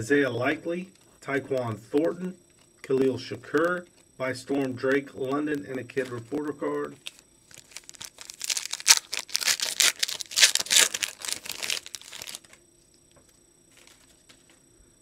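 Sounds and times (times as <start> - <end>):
foil wrapper tearing and crinkling: 7.0 - 12.6.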